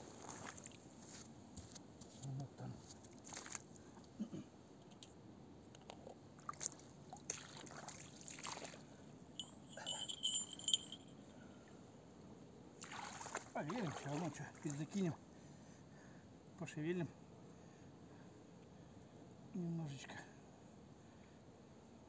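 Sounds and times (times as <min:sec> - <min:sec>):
footsteps on muddy ground: 0:00.1 - 0:01.8, 0:02.8 - 0:03.6.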